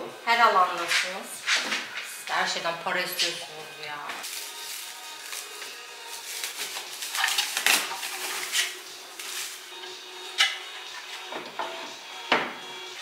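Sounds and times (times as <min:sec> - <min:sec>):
packaging rustling: 0:04.2 - 0:09.8.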